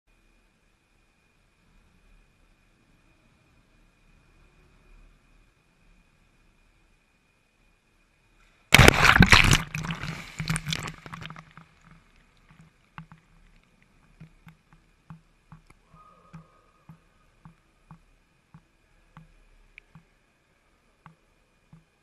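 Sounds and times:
wave splashing over model: 0:08.7 - 0:12.0
water dripping and small splashes: 0:08.7 - 0:20.2, 0:20.9 - 0:22.0.

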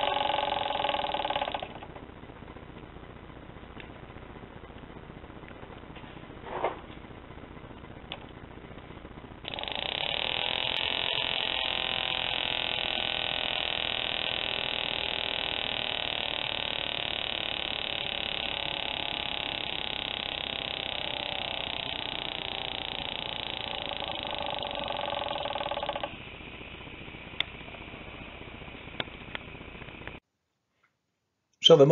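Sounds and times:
tiny model motor running: 0:00.0 - 0:01.8, 0:09.4 - 0:30.2.

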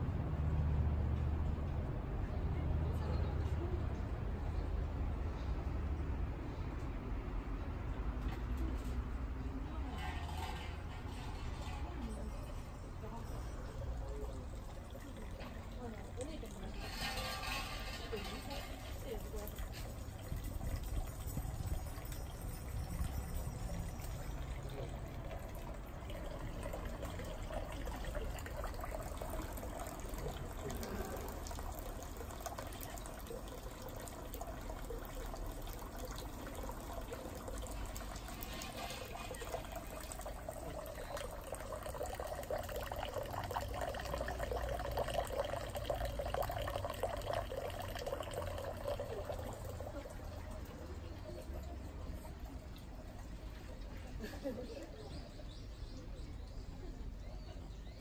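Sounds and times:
water pouring into stone basin: 0:09.9 - 0:54.2.

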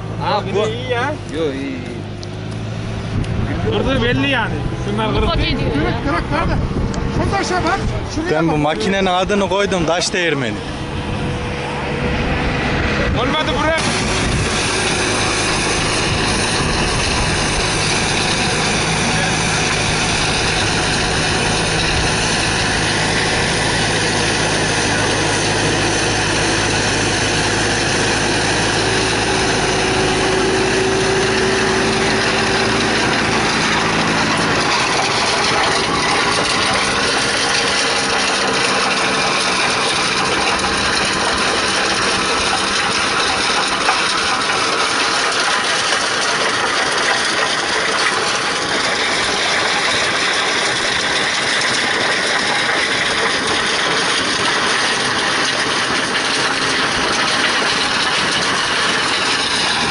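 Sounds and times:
tractor engine drone: 0:00.0 - 0:59.9
stone crusher grinding: 0:13.1 - 0:59.9.

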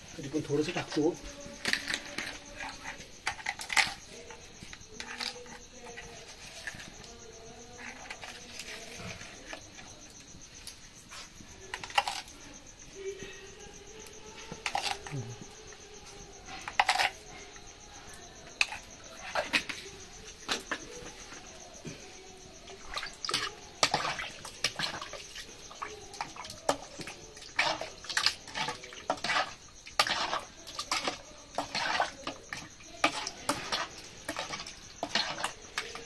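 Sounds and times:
crickets chirring: 0:00.0 - 0:36.0
faint voices: 0:00.0 - 0:36.0.

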